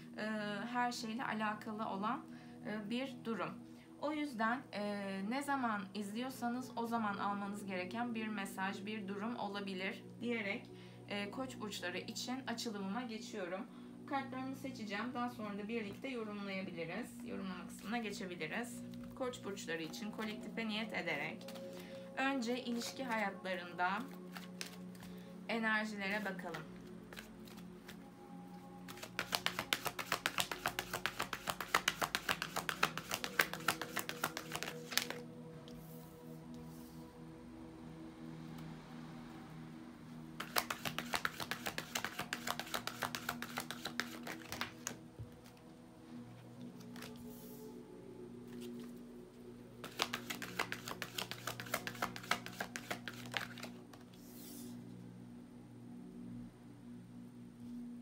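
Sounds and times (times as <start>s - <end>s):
soft background drone: 0.0s - 29.7s, 34.1s - 40.4s, 44.2s - 49.9s, 53.5s - 58.0s
cards being shuffled by hand: 21.4s - 21.8s, 24.0s - 25.1s, 26.1s - 28.0s, 28.9s - 35.3s, 40.4s - 45.6s, 46.8s - 47.4s, 48.5s - 49.0s, 49.8s - 54.7s.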